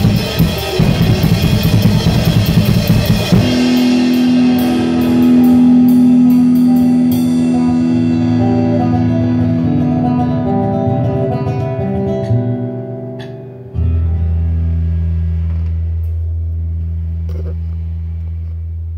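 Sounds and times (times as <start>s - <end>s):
guitar notes ringing: 0.0s - 18.5s
strong low guitar note: 0.0s - 18.5s.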